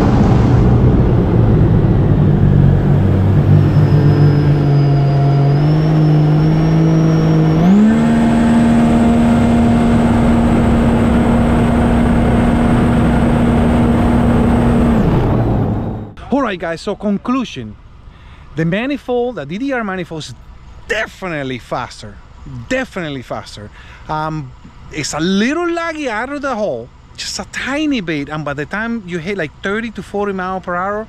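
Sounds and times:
jet ski engine at full throttle: 0.0s - 16.0s.

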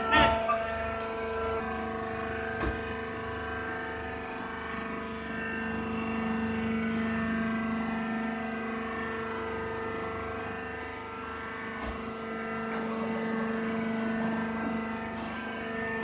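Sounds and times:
machine humming: 0.0s - 16.0s.

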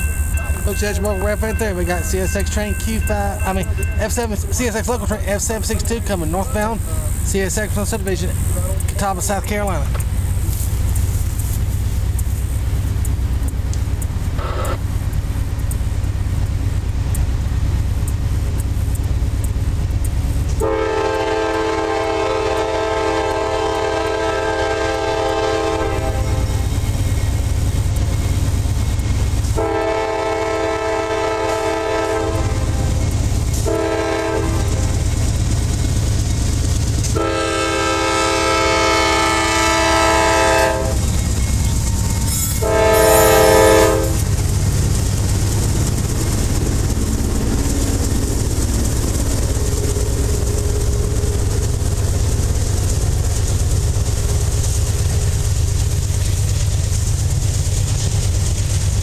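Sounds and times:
freight cars rumbling and clattering: 0.0s - 59.0s
locomotive horn blasts: 20.6s - 26.7s, 29.5s - 35.2s, 37.0s - 41.3s, 42.3s - 44.3s.

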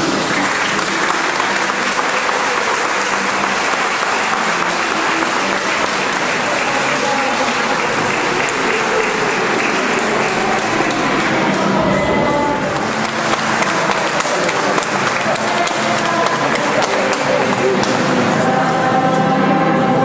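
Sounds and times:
crowd applauding: 0.0s - 18.8s.

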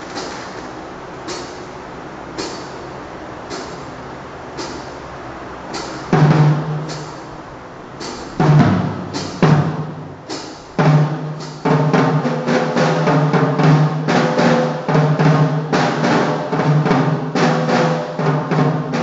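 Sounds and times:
acoustic drum kit hits: 0.0s - 1.7s, 5.7s - 7.3s, 8.0s - 19.0s
electric fan whirring: 0.0s - 19.0s.

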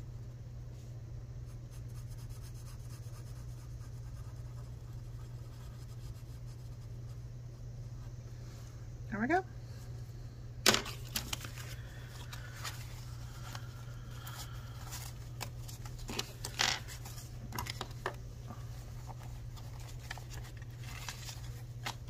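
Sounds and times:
low steady hum: 0.0s - 22.0s
banknotes rustling: 10.7s - 22.0s.

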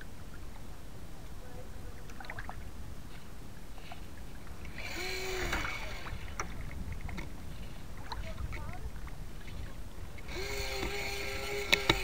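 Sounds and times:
water rushing along hull: 0.0s - 12.0s
wind rumble on microphone: 0.0s - 12.0s.

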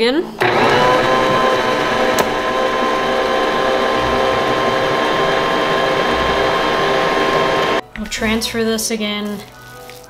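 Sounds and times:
electric mixer motor whining: 0.4s - 7.8s.

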